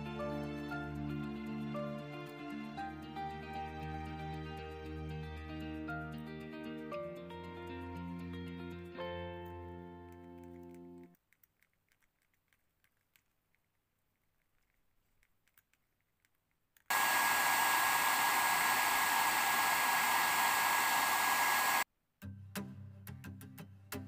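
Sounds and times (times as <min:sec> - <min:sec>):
heat gun blowing with high whine: 0:16.9 - 0:21.8.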